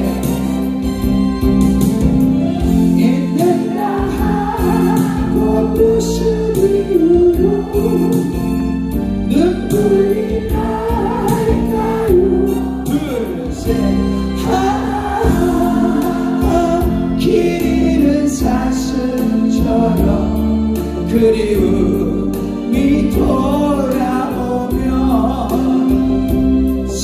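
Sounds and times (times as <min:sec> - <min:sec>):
ballad backing track: 0:00.0 - 0:27.0
group singing in unison: 0:02.4 - 0:23.4.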